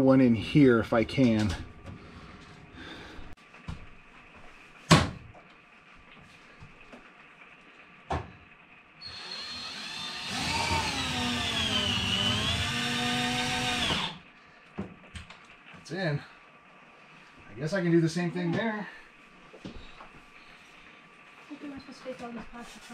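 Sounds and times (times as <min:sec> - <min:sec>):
power drill driving screw: 0:09.0 - 0:14.2.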